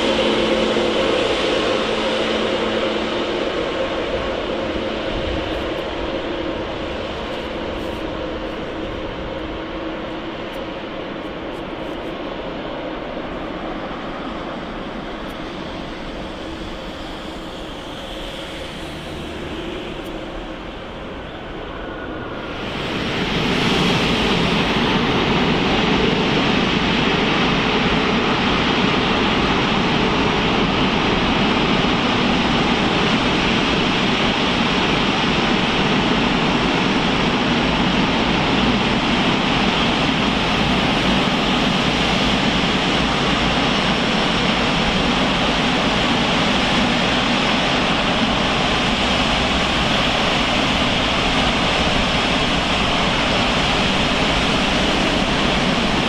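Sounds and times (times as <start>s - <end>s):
faint high whine: 0.0s - 56.0s
jet engines roaring: 0.0s - 56.0s.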